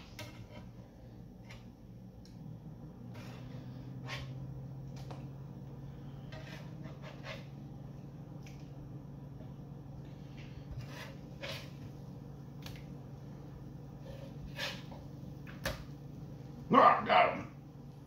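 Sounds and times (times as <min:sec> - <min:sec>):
fork tapping and scraping griddle: 0:00.0 - 0:00.8, 0:01.4 - 0:01.8, 0:06.2 - 0:07.6, 0:10.2 - 0:11.8, 0:14.0 - 0:15.8
low hum: 0:00.0 - 0:18.0.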